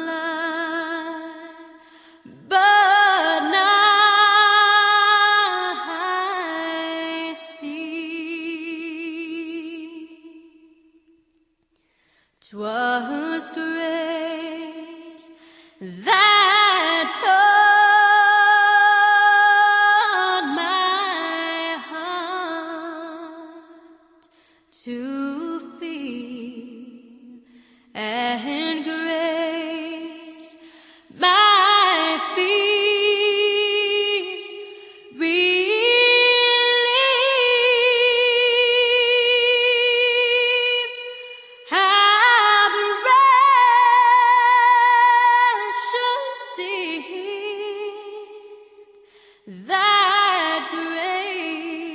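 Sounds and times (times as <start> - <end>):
woman singing a slow song: 0.0 - 11.2, 12.4 - 51.9.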